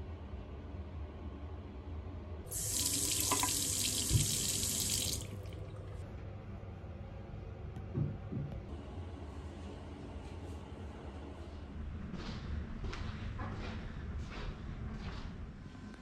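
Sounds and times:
tap water running into basin: 2.5s - 6.0s.

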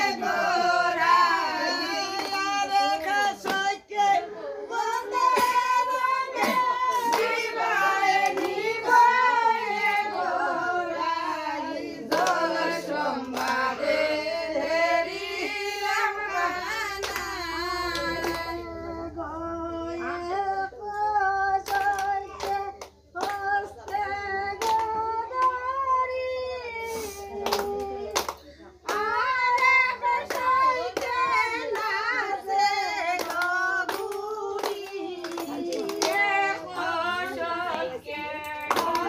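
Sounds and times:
women singing together: 0.0s - 39.0s
hand claps: 2.0s - 3.7s, 5.2s - 9.1s, 12.1s - 13.8s, 16.3s - 18.6s, 21.5s - 25.9s, 27.2s - 39.0s.

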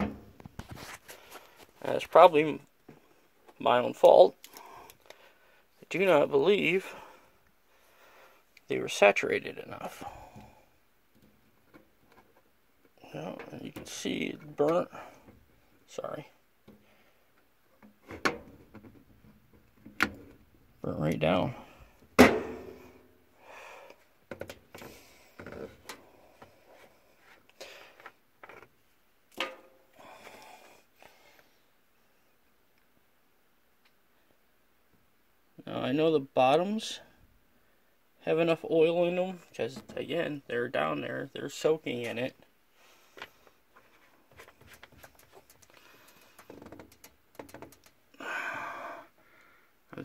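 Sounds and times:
rubbing and scuffing: 0.5s - 1.8s
faint handling clicks and taps: 43.2s - 48.0s.

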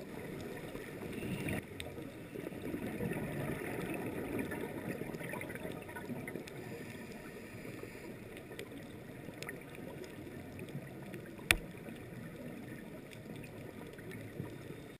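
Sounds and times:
underwater low hiss: 0.0s - 15.0s
underwater clicks: 8.3s - 14.6s.

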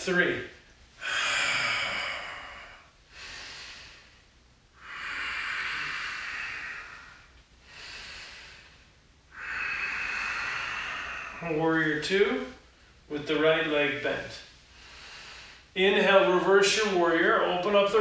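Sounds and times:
man breathing deeply: 0.9s - 11.6s, 14.5s - 15.8s.

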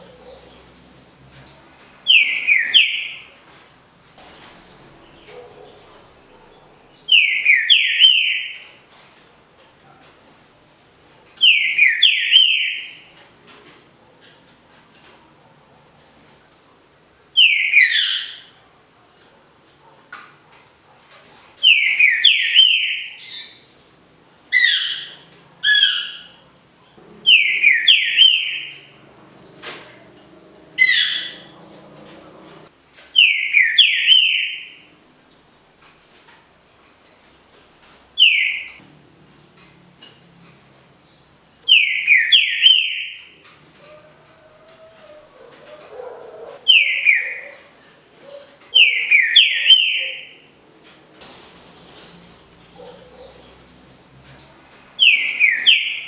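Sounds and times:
bird singing whistled phrases: 27.3s - 28.8s.

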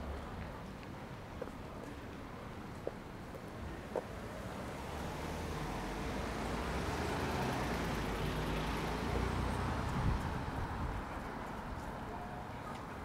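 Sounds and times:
vehicle passing by: 4.4s - 10.9s.

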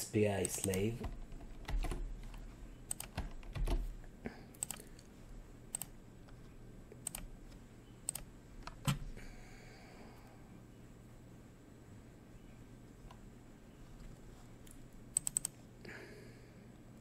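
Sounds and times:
keyboard typing: 0.4s - 3.9s, 4.5s - 5.0s, 5.7s - 5.9s, 7.0s - 7.3s, 8.0s - 9.0s, 14.7s - 15.6s.

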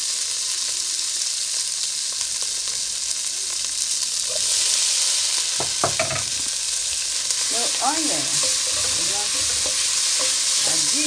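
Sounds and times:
vegetables sizzling in a pan: 0.0s - 11.0s
wooden spatula stirring: 7.4s - 11.0s.

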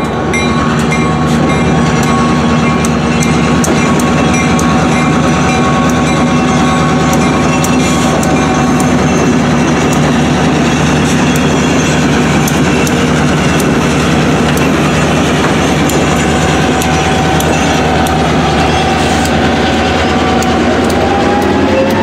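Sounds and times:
diesel locomotive engine running: 0.0s - 22.0s
rail cars rumbling and clicking: 0.0s - 22.0s.

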